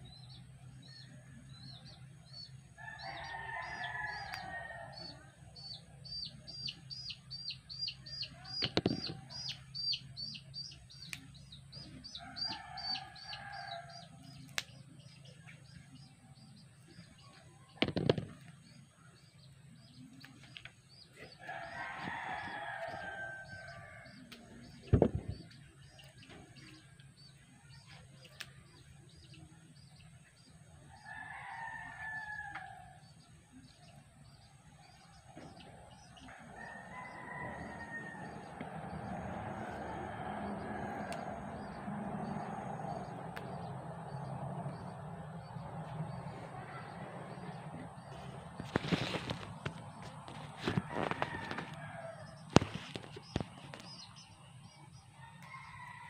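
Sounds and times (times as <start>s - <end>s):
rooster crowing: 2.8s - 5.3s, 12.2s - 14.1s, 21.4s - 24.1s, 31.0s - 32.9s, 36.3s - 43.1s, 50.6s - 52.3s, 55.2s - 56.0s.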